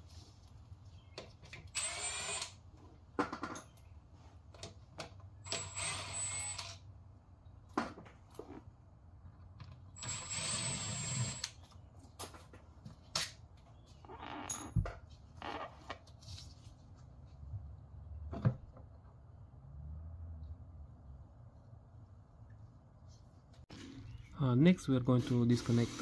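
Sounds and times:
cordless power tool spinning bolts: 1.7 - 2.6, 5.4 - 6.8, 10.0 - 11.6.

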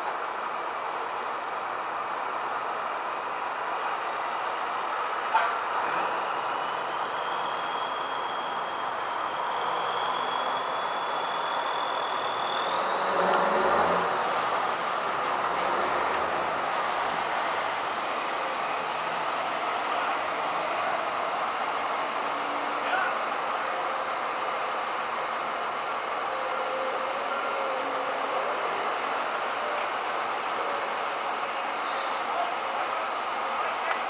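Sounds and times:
street traffic: 0.0 - 34.0
thin high whine: 6.2 - 19.6.

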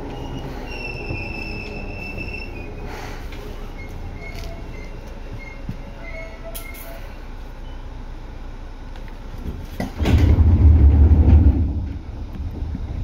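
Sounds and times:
electric train hum: 0.0 - 13.0
loud low train rumble: 0.0 - 13.0.

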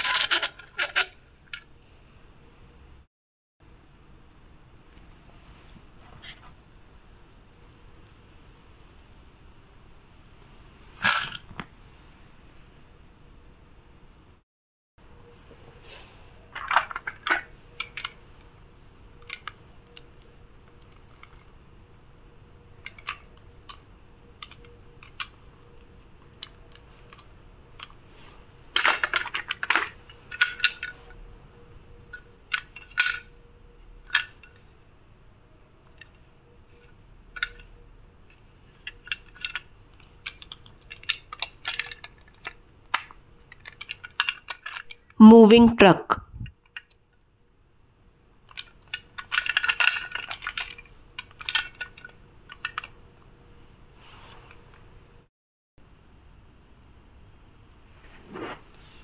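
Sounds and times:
plastic toy cars clattering: 0.0 - 1.7, 10.9 - 11.7, 16.0 - 18.4, 19.0 - 21.6, 22.8 - 31.2, 32.1 - 34.8, 35.8 - 45.2, 48.4 - 53.0.

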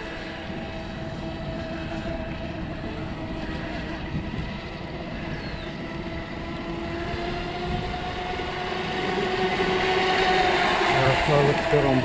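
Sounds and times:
model boat motor whining: 0.0 - 12.0.

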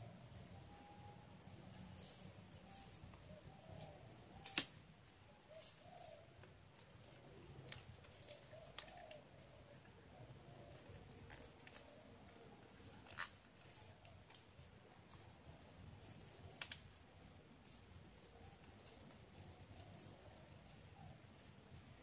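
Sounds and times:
paper rustling and crinkling: 3.8 - 10.0, 10.6 - 15.4, 16.0 - 20.8
paper clicks: 10.6 - 15.3, 17.6 - 20.7.

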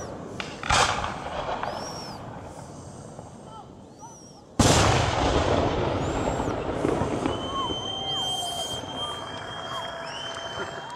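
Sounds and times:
spectators whistling: 0.0 - 0.2, 1.5 - 2.3, 3.5 - 4.6, 5.9 - 10.9
fireworks echo: 0.0 - 10.9
loud bang with rumbling: 4.6 - 8.0.

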